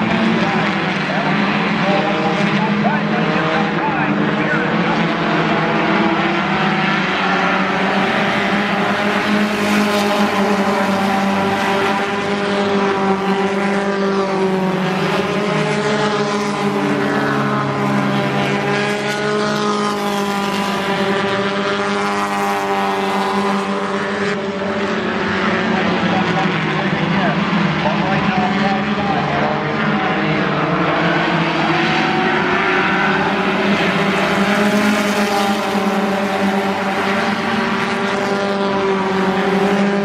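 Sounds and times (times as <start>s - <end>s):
race car engines: 0.0s - 40.0s.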